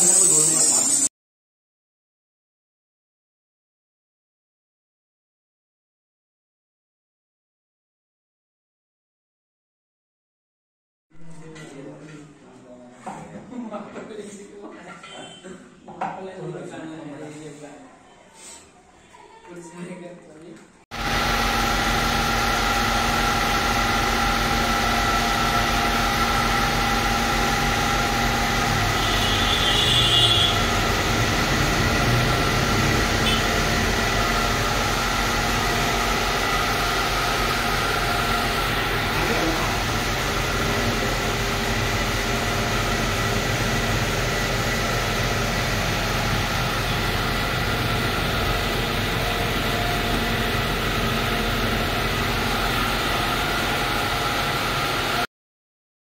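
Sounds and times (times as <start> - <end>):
refrigeration compressor running: 20.9 - 55.3.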